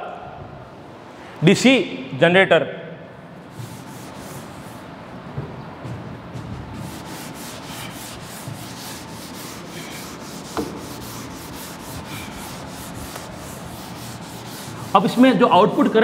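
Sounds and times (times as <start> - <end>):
cloth duster rubbing chalkboard: 3.4 - 5.0, 5.8 - 16.0.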